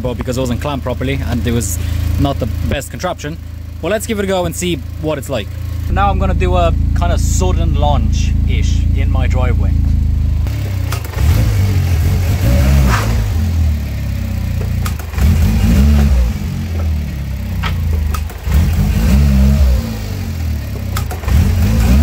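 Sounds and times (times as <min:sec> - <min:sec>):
car engine revving hard: 0:10.4 - 0:22.0.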